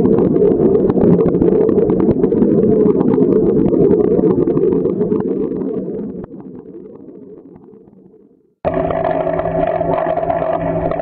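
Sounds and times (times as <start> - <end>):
scattered crackles: 0.0 - 11.0
pool vacuum rumbling: 8.7 - 11.0.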